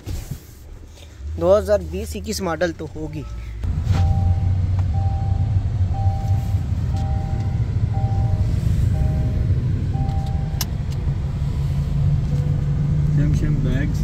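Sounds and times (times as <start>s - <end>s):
road and engine rumble: 0.0s - 14.0s
seatbelt reminder two-tone beep: 3.2s - 10.7s.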